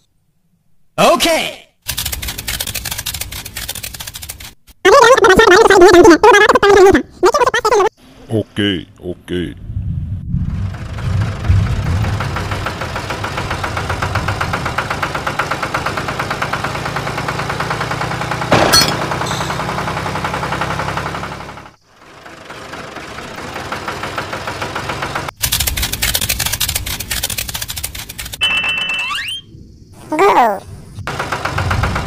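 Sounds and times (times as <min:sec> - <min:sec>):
tractor diesel engine chugging: 0:10.6 - 0:26.7, 0:31.1 - 0:32.0.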